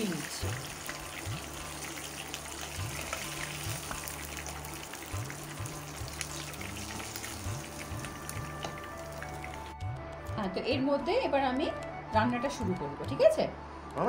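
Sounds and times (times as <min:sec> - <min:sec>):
fish sizzling in oil: 0:00.0 - 0:09.8
background music: 0:00.0 - 0:14.0.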